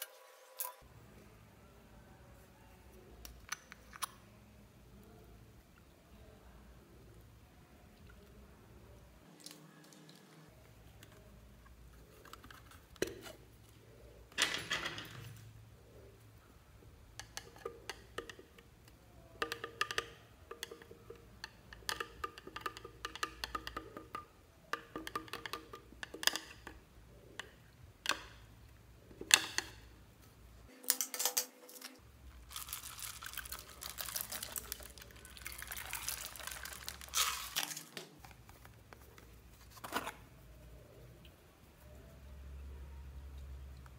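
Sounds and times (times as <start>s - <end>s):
sprinkles pouring: 32.3s - 38.0s.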